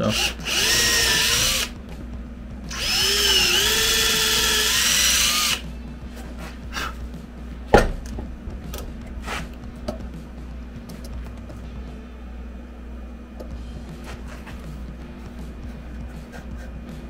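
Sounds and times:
cordless drill boring into wood: 0.0 - 1.7, 2.7 - 5.6.

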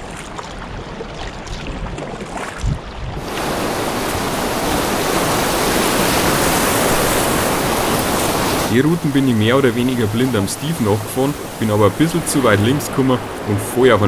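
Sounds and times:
paddle splashes: 0.0 - 14.0
whitewater rushing: 3.2 - 14.0.

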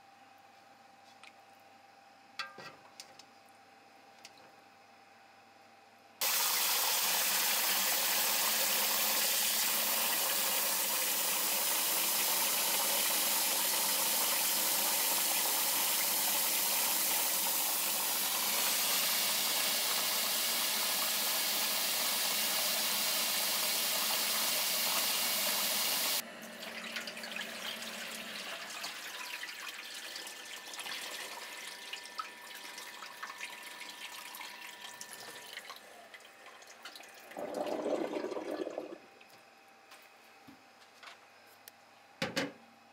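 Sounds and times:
tap water running into metal bowl: 6.2 - 39.0.

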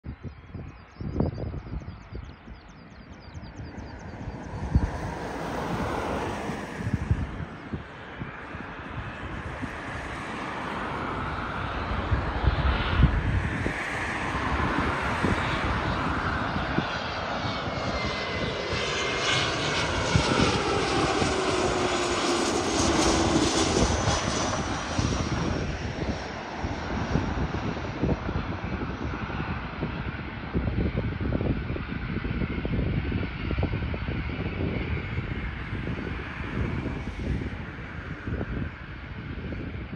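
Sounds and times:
jet passing low overhead: 0.0 - 39.9
wind thumps on microphone: 4.2 - 10.2, 22.8 - 39.9.

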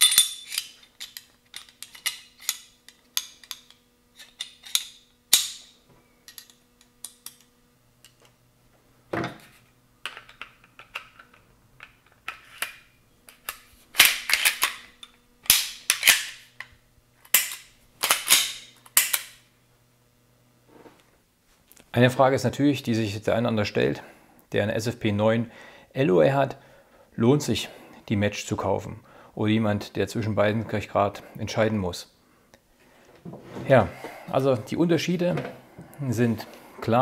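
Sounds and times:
pistol parts clicking and scraping: 0.0 - 8.4, 10.0 - 19.4.

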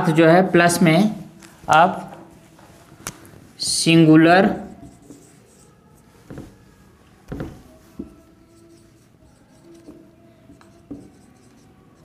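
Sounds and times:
marker writing on whiteboard: 4.4 - 12.0
soft knocks: 6.3 - 6.6, 7.3 - 8.2.

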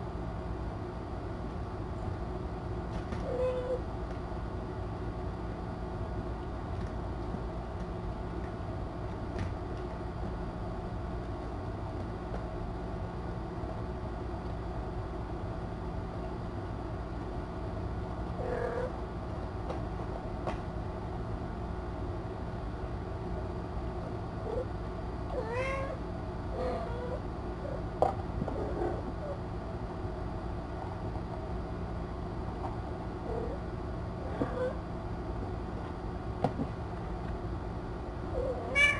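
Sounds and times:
steady low hum: 0.0 - 38.9
cats meowing: 38.4 - 38.9.

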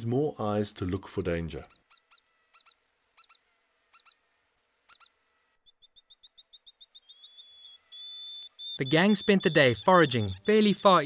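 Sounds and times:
short falling animal chirps: 4.9 - 9.1.

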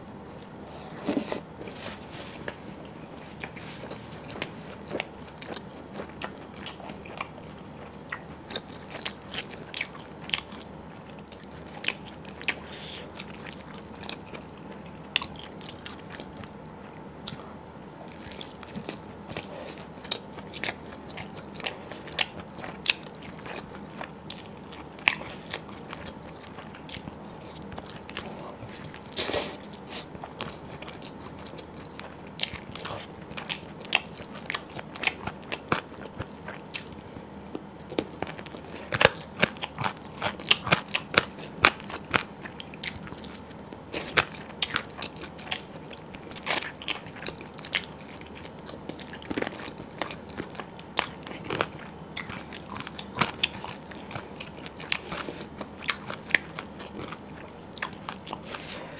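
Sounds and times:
person chewing meat: 0.2 - 58.9.

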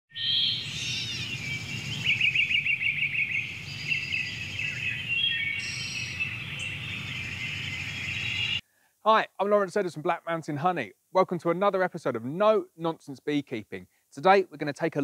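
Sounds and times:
birds singing and chirping: 0.1 - 8.6.

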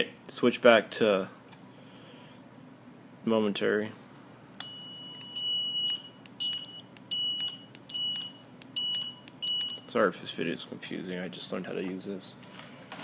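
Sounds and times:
buzzer beeping: 4.6 - 9.9.

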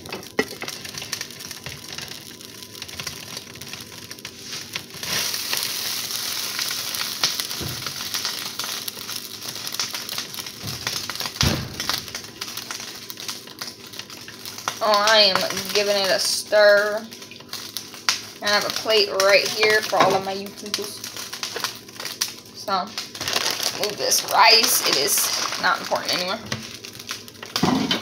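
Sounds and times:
sauce bubbling in a pan: 0.0 - 27.8.

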